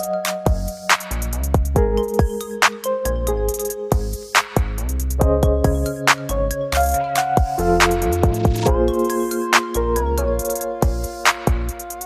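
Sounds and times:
deep drum beat: 0:04.0 - 0:09.0.

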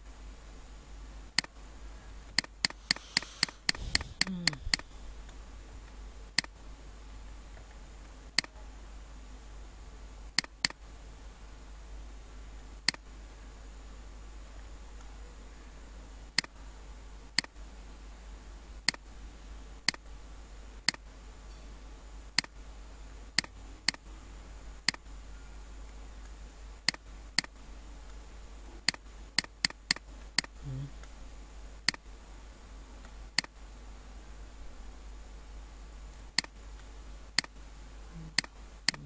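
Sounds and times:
low steady hum: 0:00.0 - 0:39.0
computer mouse clicking: 0:02.3 - 0:04.8, 0:08.4 - 0:08.6, 0:10.4 - 0:10.8, 0:12.8 - 0:13.0, 0:18.8 - 0:19.0, 0:19.8 - 0:20.1, 0:23.4 - 0:24.0, 0:24.8 - 0:25.1, 0:26.8 - 0:28.2, 0:28.8 - 0:31.2, 0:31.8 - 0:32.1, 0:36.4 - 0:37.6, 0:38.3 - 0:39.0.

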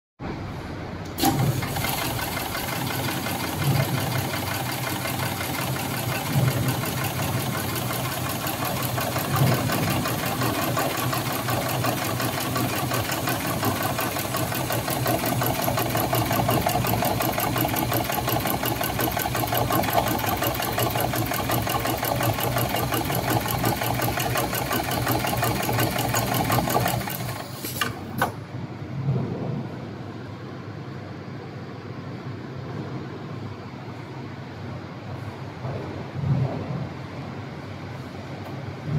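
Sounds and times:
sewing machine clicks: 0:01.1 - 0:28.4
sewing machine stitching: 0:01.2 - 0:28.4.

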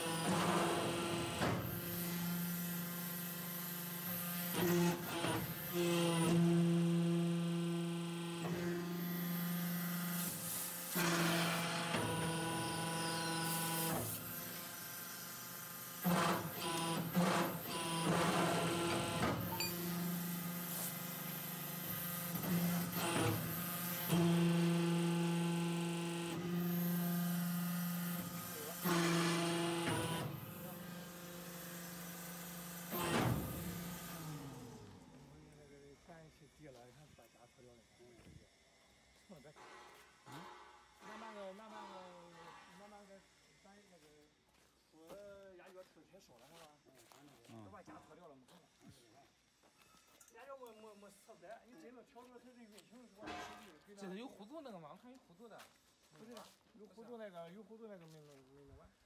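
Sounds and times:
motor and hydraulic pump humming: 0:00.0 - 0:35.8.

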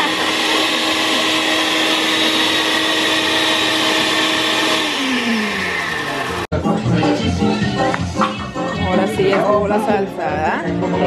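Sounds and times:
blender motor winding down: 0:00.0 - 0:06.5
blender running: 0:00.0 - 0:06.5
music: 0:06.5 - 0:11.0.

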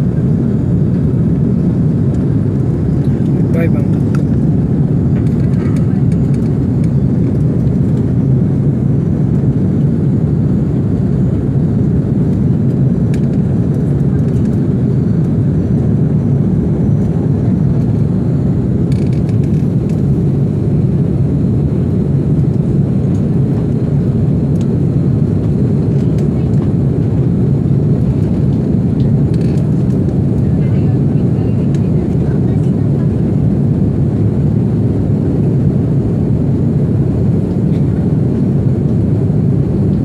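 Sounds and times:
airplane cabin engine roar: 0:00.0 - 0:40.0.

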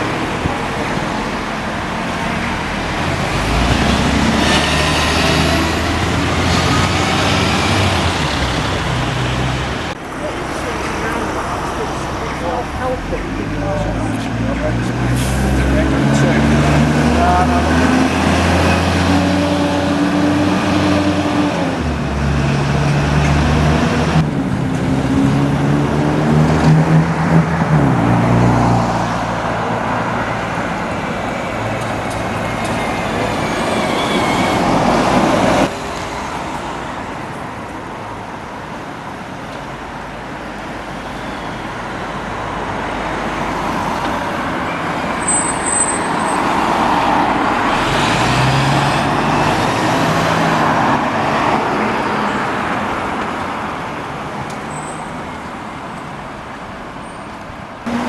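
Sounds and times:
diesel bus engine: 0:00.0 - 0:58.0
street traffic: 0:00.0 - 0:58.0.

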